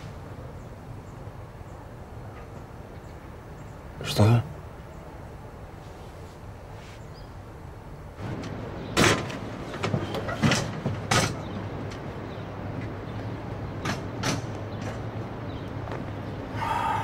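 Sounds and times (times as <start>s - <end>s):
van doors banging: 8.2s - 15.2s.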